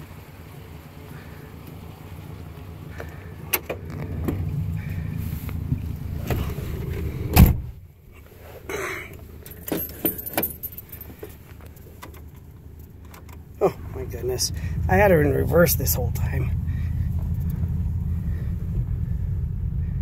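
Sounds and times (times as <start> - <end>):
rustle: 0.0 - 14.7
car door slamming: 6.2 - 7.8
keys jangling: 9.4 - 13.4.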